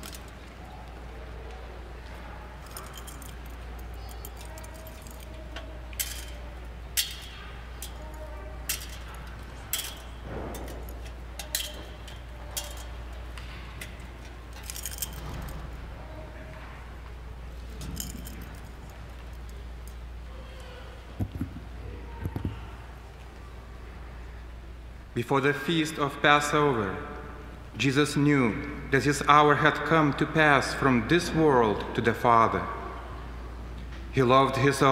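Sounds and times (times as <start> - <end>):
thurible chains clinking: 0.0 - 0.9, 2.0 - 16.8, 17.4 - 21.2
low steady hum: 0.0 - 34.9.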